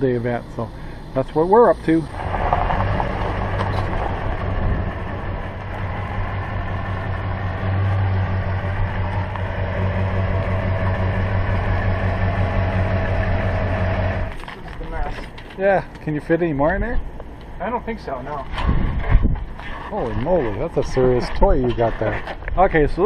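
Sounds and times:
pickup truck engine running: 0.0s - 16.0s.

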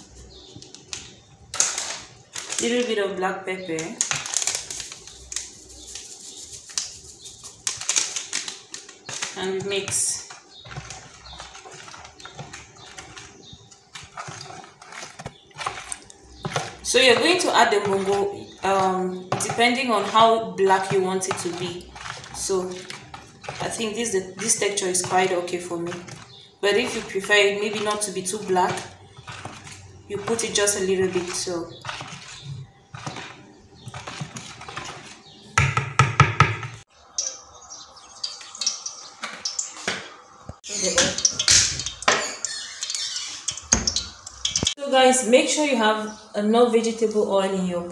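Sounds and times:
hand mixing wet fish: 0.0s - 35.6s, 36.8s - 44.8s.

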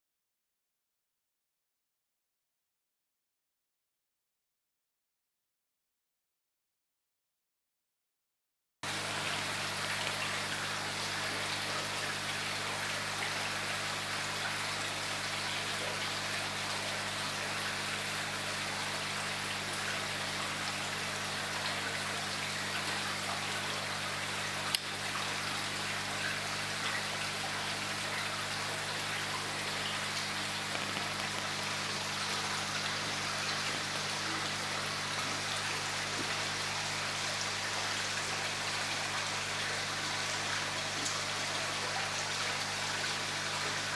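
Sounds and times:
pond water splashing and trickling: 8.8s - 43.9s.

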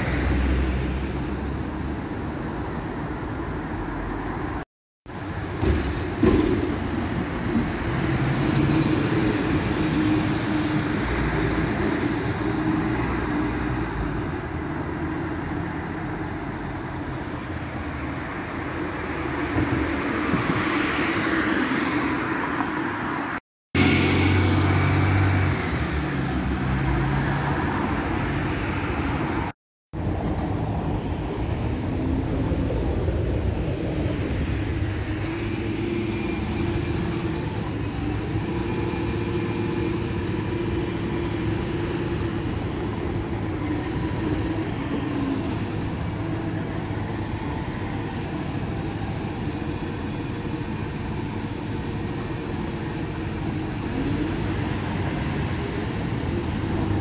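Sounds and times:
passing cars: 0.0s - 57.0s
bus engine pulling away: 5.1s - 18.9s, 20.4s - 57.0s.

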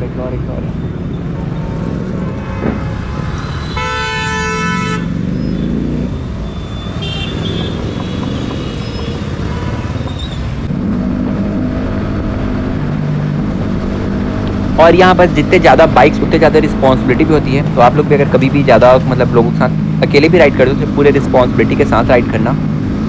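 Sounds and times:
vehicle horn blaring: 2.3s - 5.2s, 6.9s - 10.0s
motorcycles riding past: 4.5s - 14.8s.

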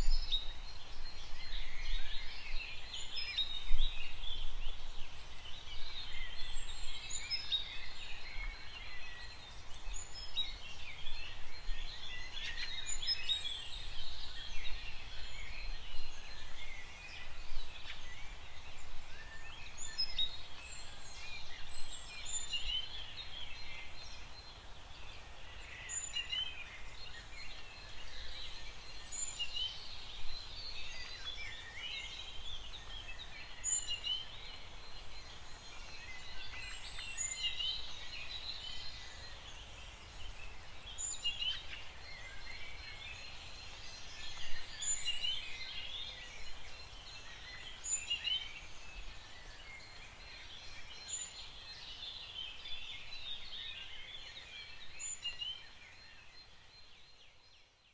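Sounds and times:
chorus of small birds chirping: 0.0s - 57.9s.

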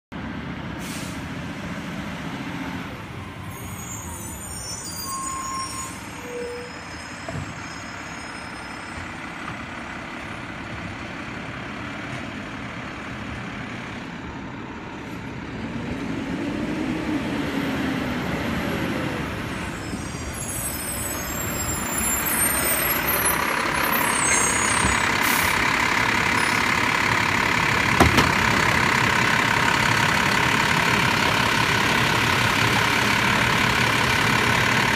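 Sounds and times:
garbage truck engine running: 21.3s - 34.9s
sharp clunk: 28.0s - 28.4s.

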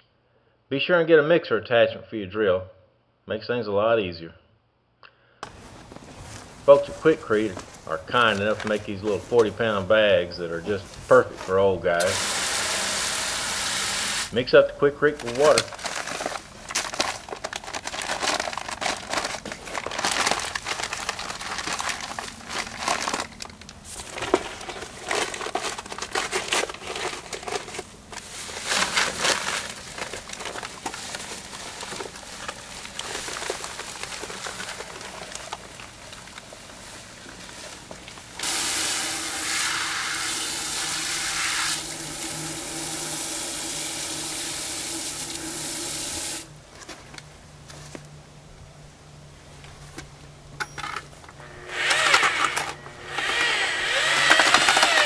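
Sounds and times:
paper sack crinkling: 5.4s - 14.4s, 15.0s - 48.1s
water spraying into bucket: 12.0s - 14.3s, 38.4s - 46.5s
scraping and pouring: 38.4s - 46.4s.

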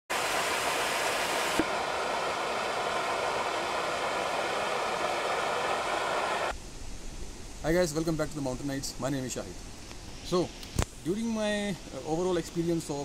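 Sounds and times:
waterfall splashing over boulders: 0.1s - 6.5s.

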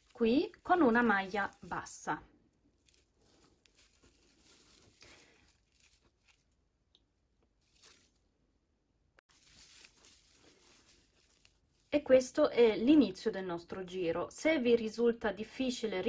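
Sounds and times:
yarn rustling and crinkling: 0.0s - 8.4s, 9.3s - 13.4s.

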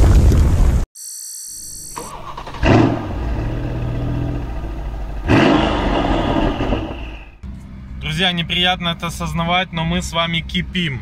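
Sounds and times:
car engine revving: 2.1s - 7.4s.

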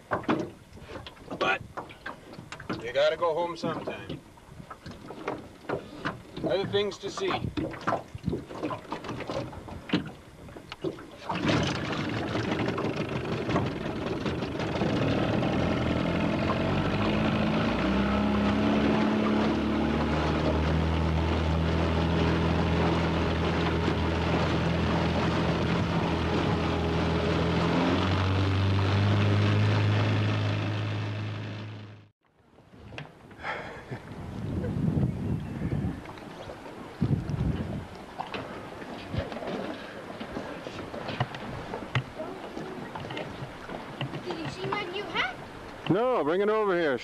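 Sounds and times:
outboard motor running: 0.0s - 32.2s, 33.2s - 47.0s.

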